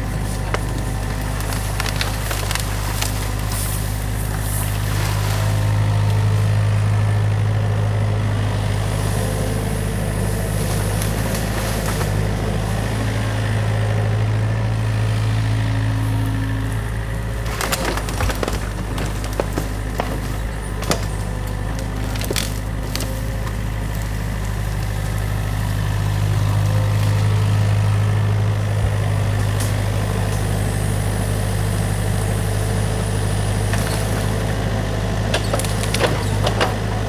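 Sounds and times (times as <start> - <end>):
excavator diesel engine running: 0.0 - 37.0
sticks snapping and cracking: 0.3 - 3.6, 17.4 - 25.2.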